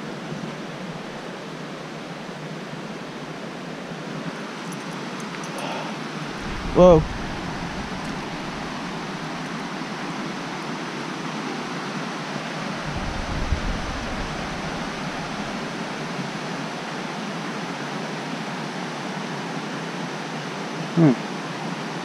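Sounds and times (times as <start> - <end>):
river cascading over rocks: 0.0 - 22.0
low rumble: 6.2 - 9.4.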